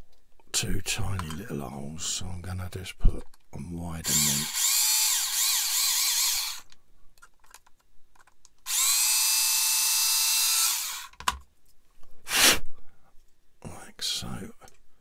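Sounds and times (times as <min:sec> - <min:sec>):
mini drill whining: 0:04.0 - 0:06.7, 0:08.6 - 0:11.2.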